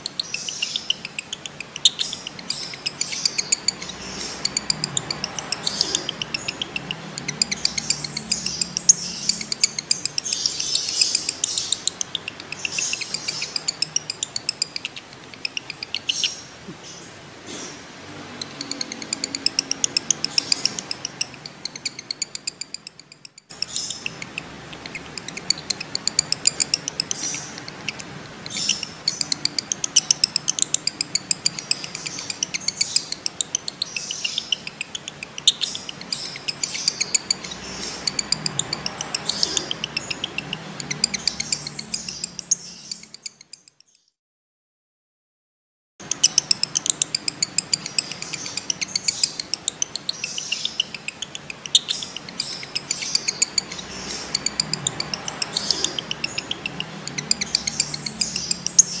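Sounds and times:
lovebird chattering shrill chirps: 0.0 - 17.0, 18.3 - 44.0, 46.0 - 59.0.

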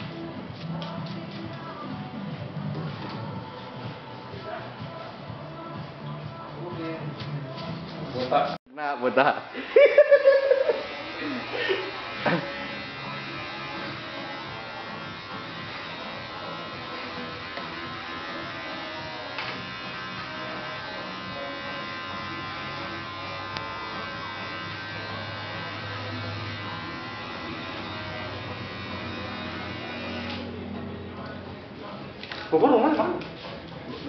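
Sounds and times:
electric hair clippers buzzing: 10.3 - 30.9.

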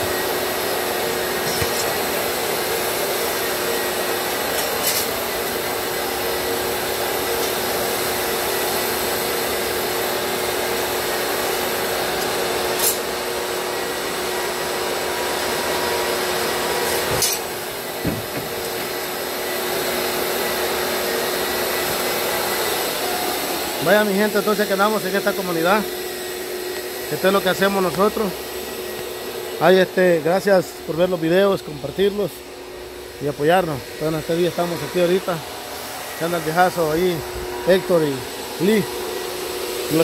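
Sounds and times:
shop vacuum running: 0.0 - 40.0
sharp knocks: 18.0 - 18.6
drywall sander scraping ceiling: 33.2 - 40.0.

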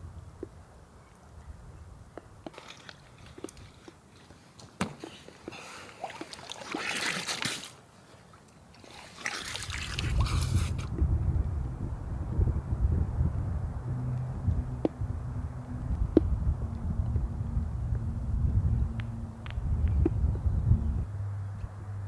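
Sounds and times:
water splashing and trickling: 2.4 - 4.0, 5.4 - 11.0
wind rumble on microphone: 9.6 - 22.0.

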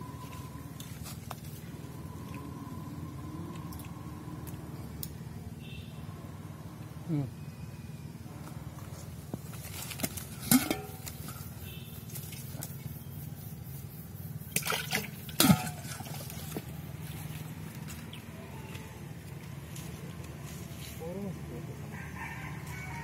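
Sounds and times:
metal bowl ringing clinks: 10.5 - 11.4
water splashing in metal bowl: 14.5 - 16.4.

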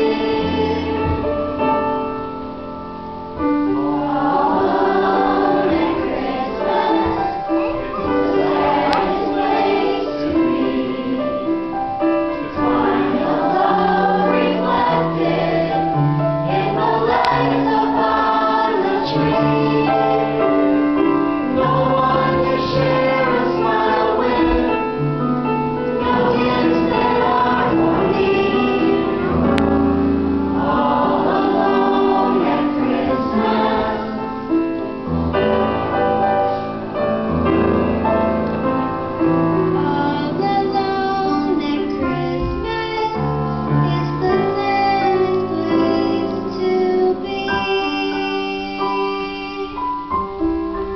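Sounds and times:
children singing: 0.0 - 1.7, 3.8 - 25.2, 25.8 - 29.6, 30.5 - 34.7, 39.8 - 49.8
piano accompaniment: 0.0 - 50.9.

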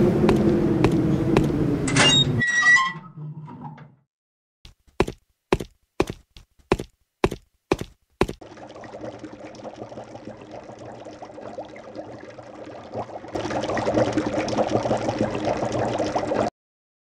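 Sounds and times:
broth bubbling in metal pot: 8.4 - 16.5.

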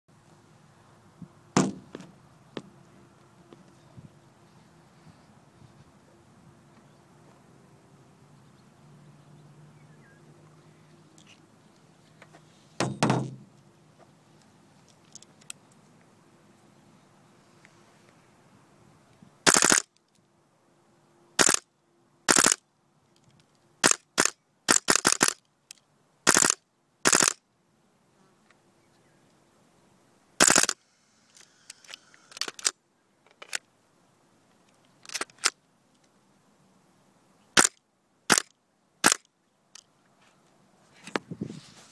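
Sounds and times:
faint clicks: 14.3 - 16.1, 30.4 - 33.7, 34.4 - 36.2, 37.6 - 41.2
airsoft rifle shots: 19.4 - 19.9, 21.4 - 21.6, 22.3 - 22.6, 23.8 - 25.4, 26.3 - 27.4, 30.4 - 30.8, 37.6 - 39.2.

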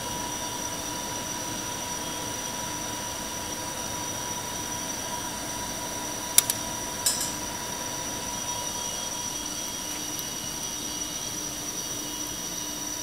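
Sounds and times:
mechanical hum with high whine: 0.0 - 13.0
metal clamp clicks: 6.4 - 7.4
metal clack with short ring: 7.1 - 7.5.

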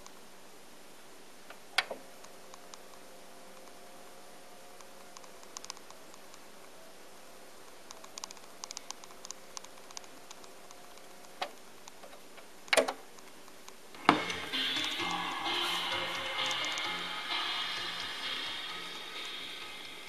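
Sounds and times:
turntable click: 13.6 - 20.0
turntable drive whine: 13.8 - 20.0.

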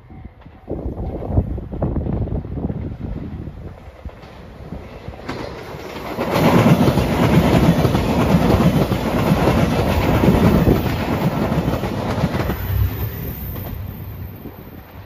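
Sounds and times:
train wheels clattering on rails: 0.0 - 15.0.

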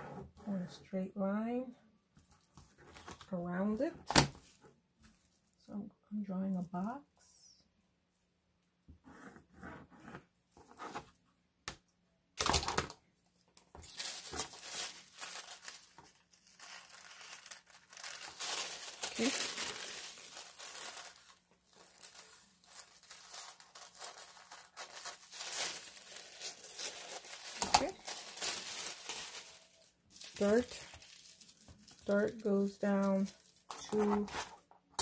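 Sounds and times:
tissue paper crinkling and rustling: 4.4 - 5.6, 13.7 - 34.7.

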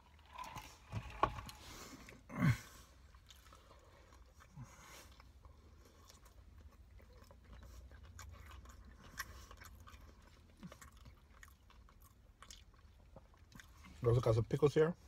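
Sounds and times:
chewing mouth clicks: 3.1 - 14.0.

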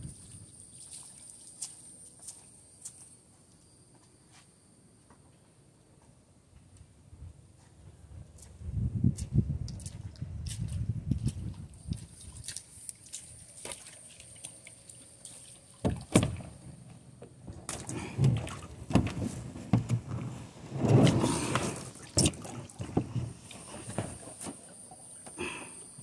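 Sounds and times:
water sloshing: 9.8 - 16.6, 17.5 - 25.2
paddle strokes: 17.7 - 25.1.

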